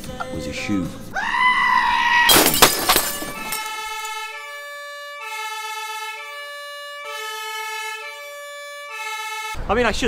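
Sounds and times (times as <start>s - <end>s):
two-tone siren: 3.2s - 9.6s.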